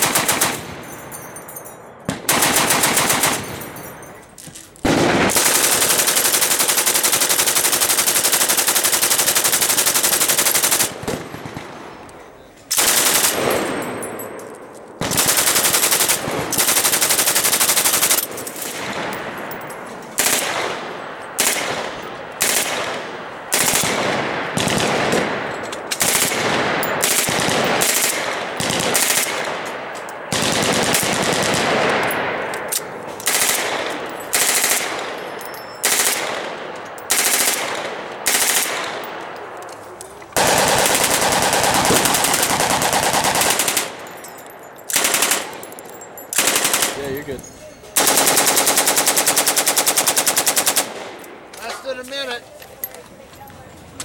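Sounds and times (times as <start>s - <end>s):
machine gun bursts: 0.0s - 0.6s, 2.3s - 3.6s, 4.9s - 11.2s, 12.8s - 13.6s, 15.0s - 18.2s, 26.0s - 26.4s, 27.0s - 29.4s, 33.2s - 34.9s, 35.8s - 36.3s, 37.1s - 38.8s, 40.4s - 44.2s, 44.9s - 45.6s, 46.4s - 47.2s, 48.0s - 50.9s.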